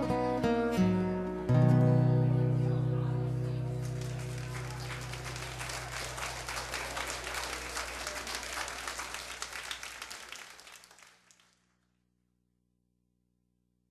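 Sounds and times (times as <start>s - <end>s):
guitar chord ringing: 0.0s - 5.6s
audience applauding: 3.6s - 11.6s.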